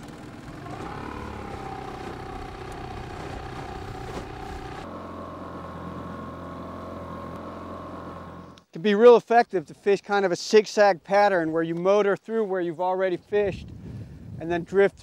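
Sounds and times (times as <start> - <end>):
outboard motor running: 0.0 - 8.6.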